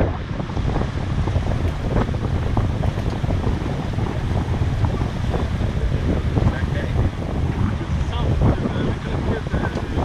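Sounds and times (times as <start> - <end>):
choppy water rushing along hull: 0.0 - 10.0
wind buffeting microphone: 0.0 - 10.0.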